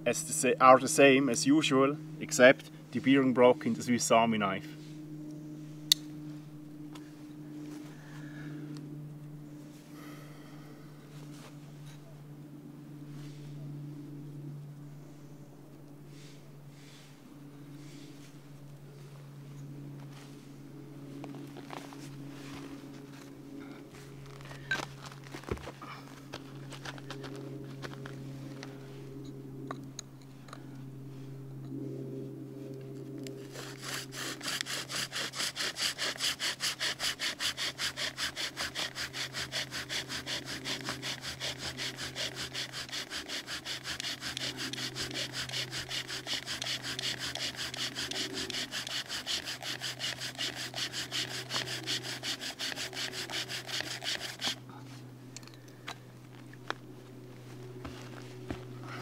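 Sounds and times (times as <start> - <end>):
bow drill rasping: 33.4 - 54.7.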